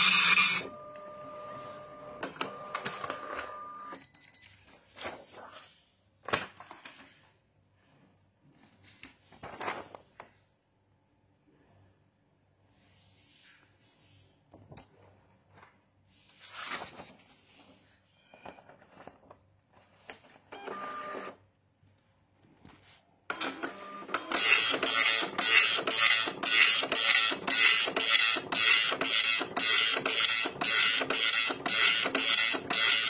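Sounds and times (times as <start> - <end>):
dot-matrix printer buzzing: 0.0 - 3.9, 23.4 - 33.0
printer whirr: 0.0 - 4.0, 20.5 - 21.4, 23.3 - 33.0.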